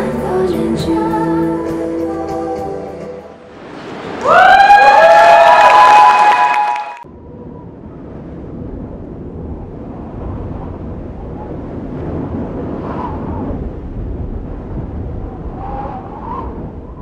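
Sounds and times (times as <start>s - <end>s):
low steady rumbling: 7.0s - 17.0s.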